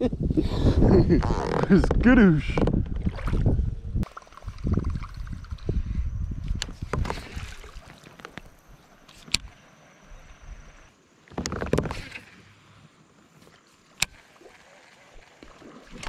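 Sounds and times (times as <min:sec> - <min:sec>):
low rumbling bumps: 0:00.6 - 0:04.0.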